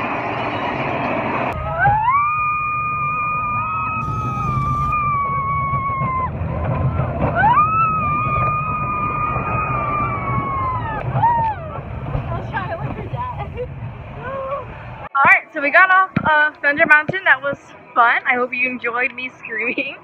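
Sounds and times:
coaster train rumbling: 0.0 - 15.1
rush of noise: 0.0 - 15.1.

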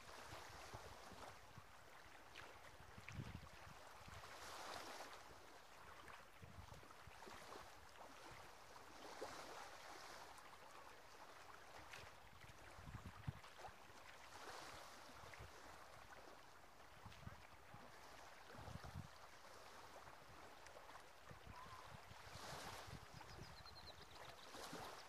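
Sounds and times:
small waves washing onto shore: 0.0 - 25.0
wind bumps on microphone: 3.0 - 3.5, 12.8 - 13.4, 21.5 - 23.6.

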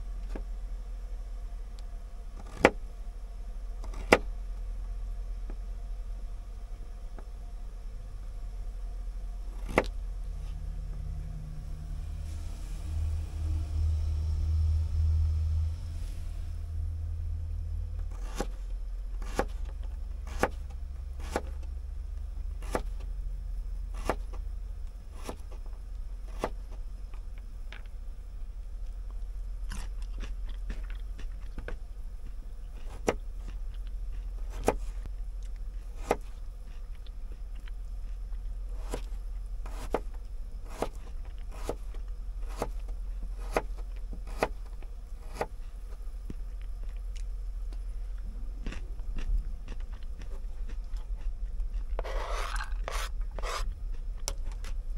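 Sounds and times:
steady low hum: 0.0 - 54.9
knife chopping on cutting board: 18.1 - 18.6, 19.2 - 19.6, 20.3 - 20.6, 21.2 - 21.5, 22.6 - 22.9, 24.0 - 24.2, 34.5 - 34.8, 36.0 - 36.3, 39.7 - 40.0, 43.4 - 43.7, 44.3 - 44.5.

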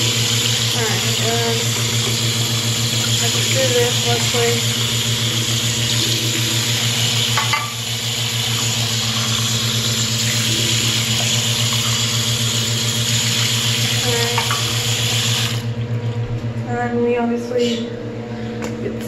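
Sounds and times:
tap water splashing into sink: 12.9 - 15.6.

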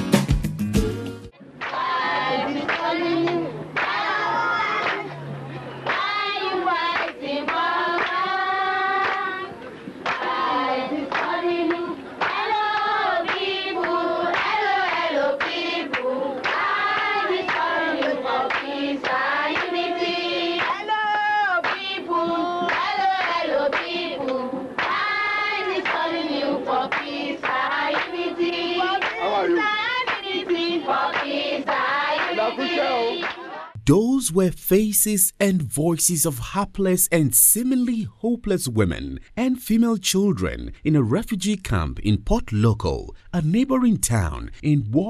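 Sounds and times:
hands clapping: 1.6 - 2.0, 2.6 - 4.1, 4.8 - 5.1, 5.8 - 6.2, 6.9 - 8.2, 9.0 - 9.2, 10.0 - 10.4, 11.1 - 19.7, 21.6 - 21.9, 22.7 - 23.9, 24.8 - 25.0, 25.8 - 26.0, 26.9 - 28.1, 29.0 - 29.3, 30.0 - 31.3, 33.2 - 36.2
women and girls singing: 1.6 - 5.1, 5.8 - 33.8.

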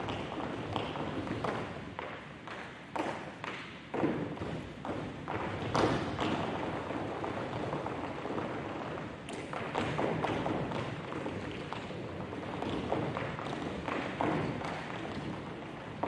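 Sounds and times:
tap shoes on stage floor: 0.0 - 16.0.

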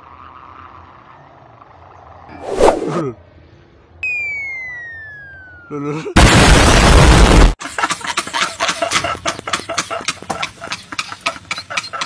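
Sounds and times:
explosion sound effect: 4.9 - 7.6
hearty breathless laughter: 7.6 - 12.0.

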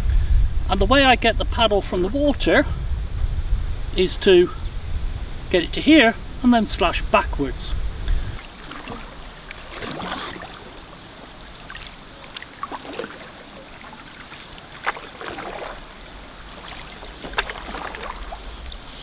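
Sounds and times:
wind rumble on microphone: 0.0 - 19.0
water drips: 8.1 - 18.9
paddle splashing through water: 8.1 - 19.0.

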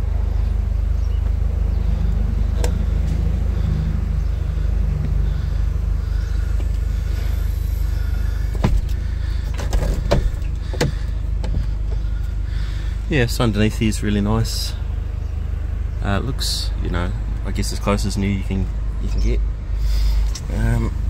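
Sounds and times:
low motor hum: 0.0 - 21.0
roof latching clicks and knocks: 2.6 - 3.2, 8.5 - 12.1.

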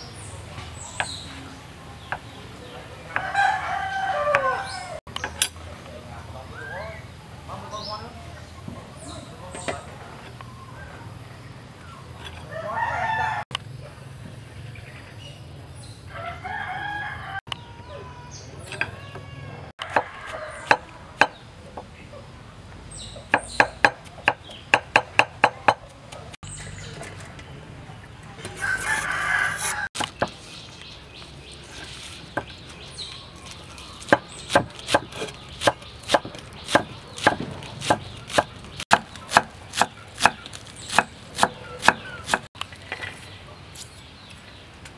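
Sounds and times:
rooster crowing: 3.1 - 5.0, 12.5 - 13.5, 16.1 - 18.5, 19.4 - 20.9, 28.5 - 29.9
cleaver chopping on wooden board: 19.8 - 21.4, 23.3 - 25.9, 34.1 - 42.5.

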